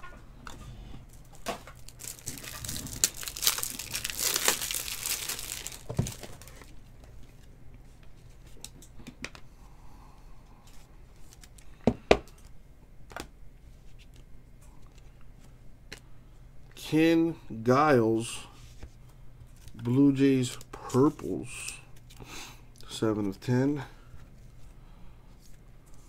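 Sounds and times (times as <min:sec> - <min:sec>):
wrapper tearing and crinkling: 0:01.2 - 0:06.7.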